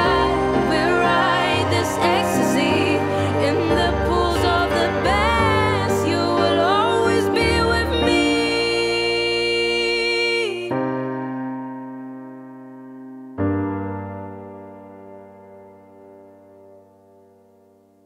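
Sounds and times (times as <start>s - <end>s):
backing band: 0.0s - 8.9s
electric piano chords: 0.0s - 18.0s.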